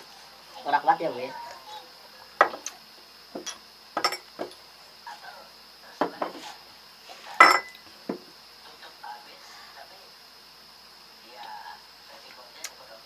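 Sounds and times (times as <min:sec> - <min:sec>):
glass and bottles clinking on table: 0:03.4 - 0:04.6, 0:07.4 - 0:07.8.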